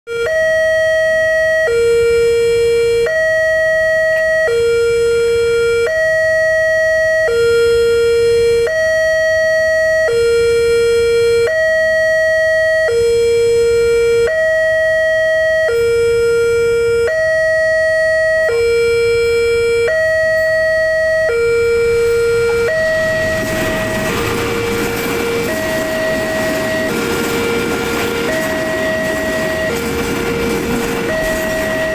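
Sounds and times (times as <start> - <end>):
two-tone crossing alarm: 0.1 - 31.9
diesel train passing: 20.1 - 31.9.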